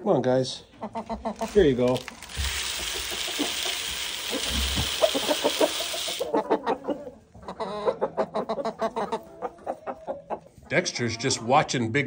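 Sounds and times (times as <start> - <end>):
hens clucking: 0.4 - 11.8
feed pouring into plastic feeder: 1.3 - 6.3.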